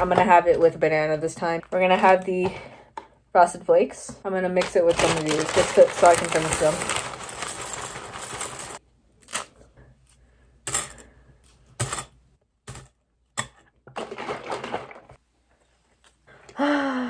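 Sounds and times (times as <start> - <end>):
cereal pouring into bowl: 5.0 - 8.8.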